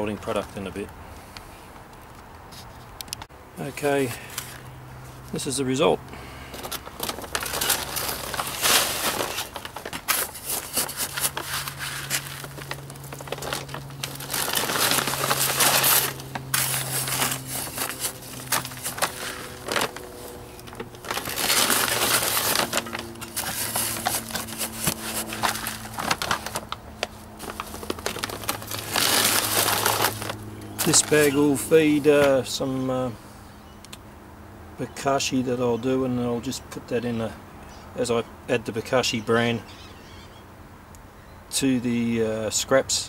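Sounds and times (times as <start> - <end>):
plastic bag crinkling: 6.5 - 32.1
char pouring into plastic bag: 7.0 - 20.0, 21.0 - 26.6, 27.4 - 31.3
metal scoop scraping granular char: 7.4 - 26.0.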